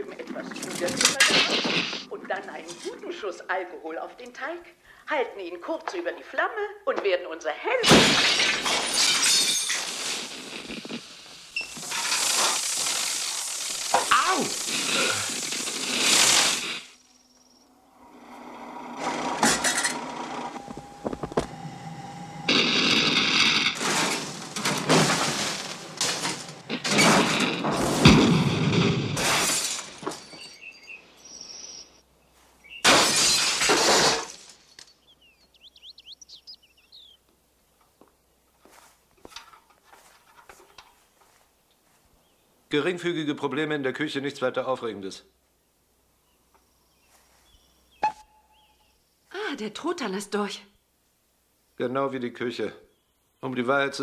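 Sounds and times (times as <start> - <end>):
glass breaking: 7.9 - 16.8, 22.5 - 30.8, 32.8 - 34.9
loud crashes and bursts: 7.9 - 17.0, 22.5 - 30.5, 32.8 - 34.8.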